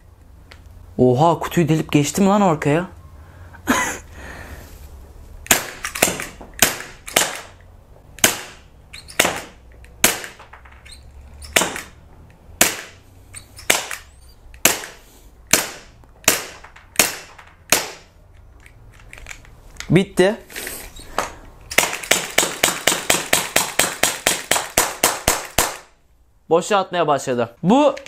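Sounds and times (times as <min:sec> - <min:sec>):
airsoft pistol shots: 0:05.4 - 0:07.6, 0:08.2 - 0:10.4, 0:11.5 - 0:12.0, 0:12.6 - 0:13.0, 0:13.6 - 0:18.1, 0:21.7 - 0:25.9.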